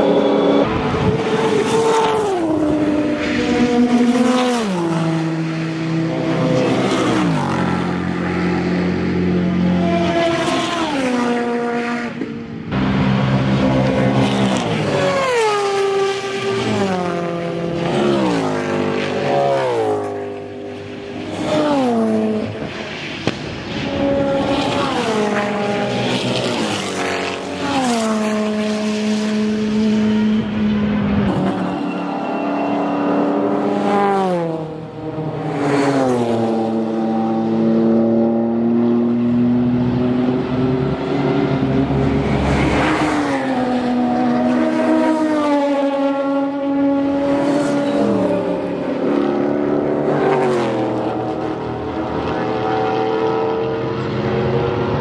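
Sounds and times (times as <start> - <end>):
race car engines passing: 0.0 - 55.0.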